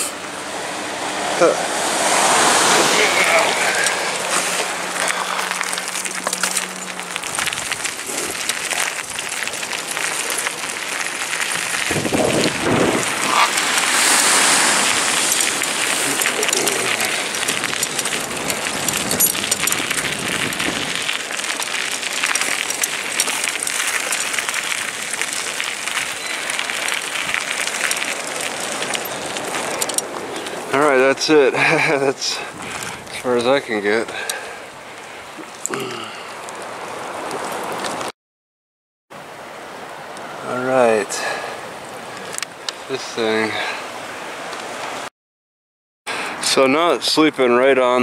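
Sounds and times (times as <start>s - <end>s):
ocean surf: 0.0s - 7.3s, 9.7s - 32.6s
wind: 0.0s - 38.1s, 39.1s - 45.1s, 46.1s - 48.0s
fine crackling: 2.2s - 30.9s.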